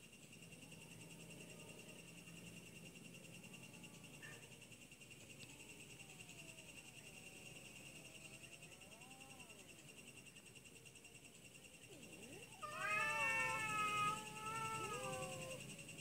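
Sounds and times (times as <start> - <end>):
insects trilling: 0.0 - 16.0
cats yowling: 11.8 - 15.8.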